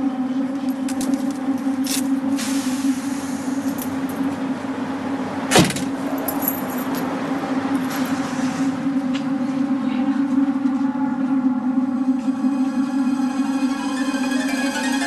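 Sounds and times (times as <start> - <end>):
steady low hum: 0.0 - 15.0
keys jingling: 6.2 - 7.0.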